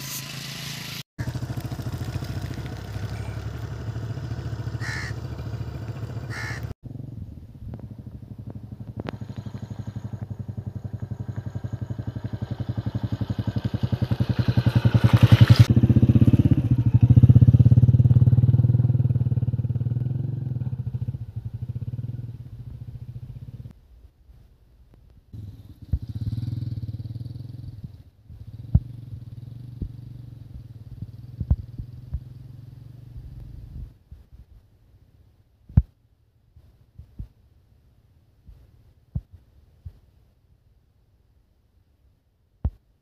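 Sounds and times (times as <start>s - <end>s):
motorcycle engine passing by: 0.0s - 23.7s, 25.3s - 33.9s.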